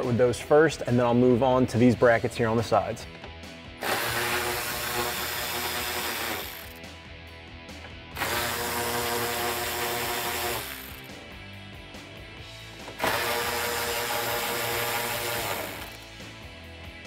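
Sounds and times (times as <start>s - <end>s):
electric ratchet running: 3.8s - 6.8s, 8.2s - 11.2s, 13.0s - 16.0s.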